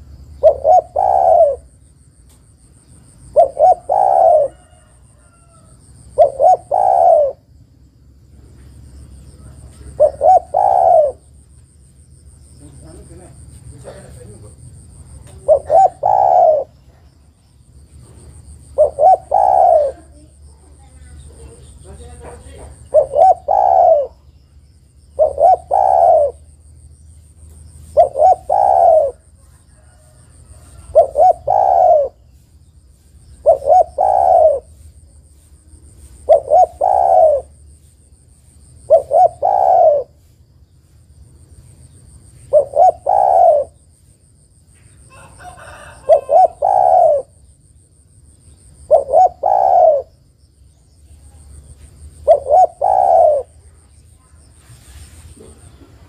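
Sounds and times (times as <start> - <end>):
dove cooing: 0.0 - 1.8, 3.2 - 7.6, 9.4 - 11.4, 12.7 - 17.2, 18.0 - 26.5, 27.8 - 32.4, 33.3 - 35.0, 36.0 - 37.6, 38.7 - 40.3, 42.4 - 43.9, 45.1 - 47.5, 48.7 - 50.3, 51.6 - 54.0.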